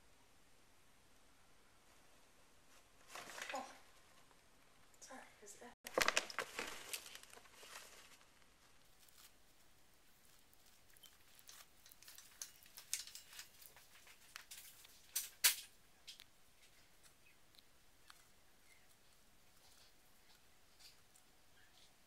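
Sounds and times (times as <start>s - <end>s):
rustling in wood-shaving bedding: 5.9s - 15.1s.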